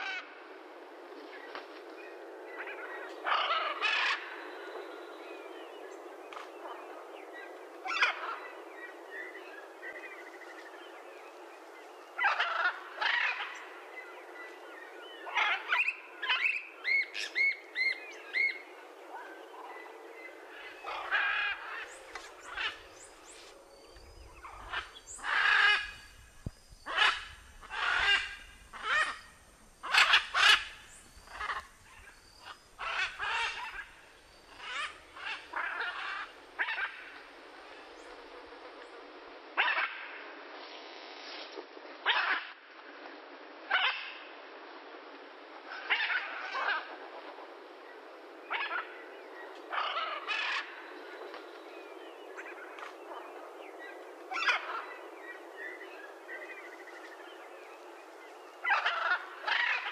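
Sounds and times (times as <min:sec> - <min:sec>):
macaw squawking: 0:26.8 - 0:31.7, 0:32.5 - 0:34.0.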